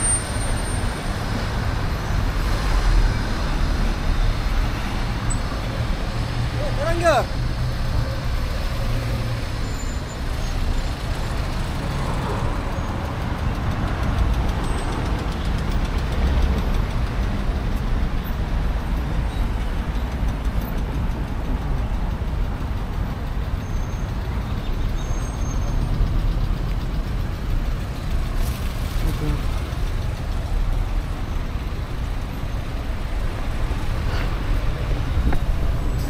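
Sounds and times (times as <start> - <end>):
road traffic rumble: 0.0 - 36.0.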